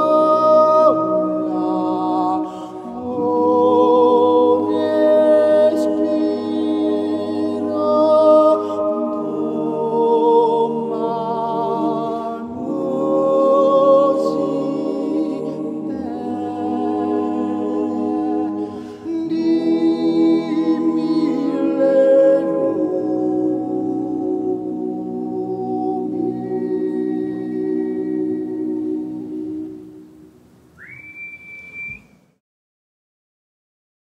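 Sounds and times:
a cappella group singing: 0:00.0 - 0:30.0.

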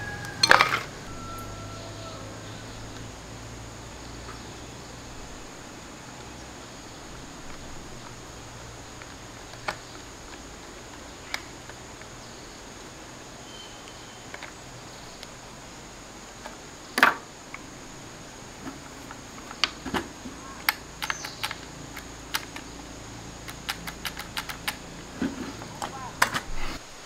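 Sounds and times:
steady faint hiss: 0:00.0 - 0:27.0
small parts and tools clicking: 0:00.1 - 0:01.5, 0:08.8 - 0:12.2, 0:20.6 - 0:24.9.

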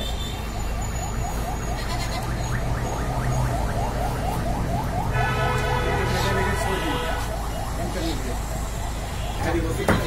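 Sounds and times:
held horn-like tone: 0:05.1 - 0:07.4.

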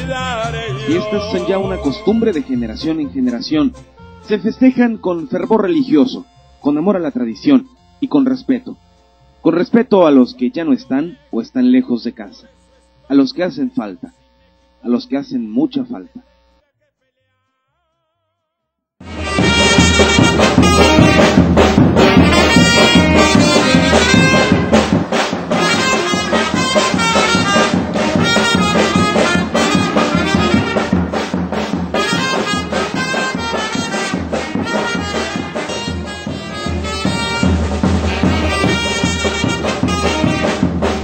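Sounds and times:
brass band music: 0:00.0 - 0:08.6, 0:19.0 - 0:41.0.

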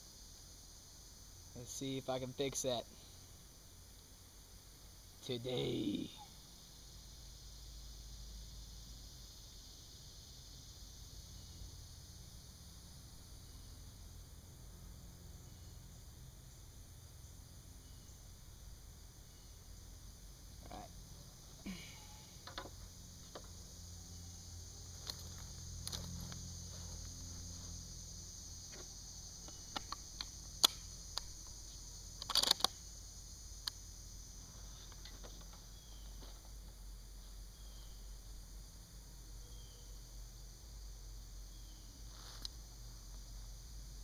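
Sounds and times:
insects droning: 0:00.0 - 0:44.0
metallic clicks of rifle handling: 0:32.2 - 0:32.8.

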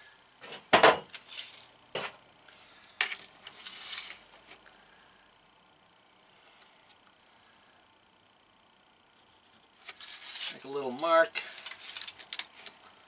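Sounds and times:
tape measure blade rasping out: 0:03.5 - 0:04.3.

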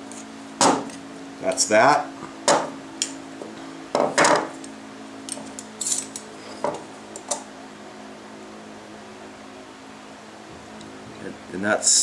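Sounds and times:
steady low hum: 0:00.0 - 0:12.0
objects knocking on metal table: 0:04.0 - 0:04.5.

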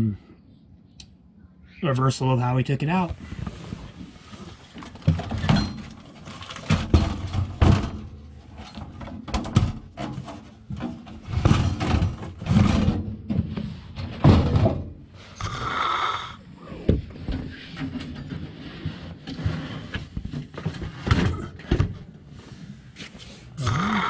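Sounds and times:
metal scraping across floor: 0:17.5 - 0:20.2.

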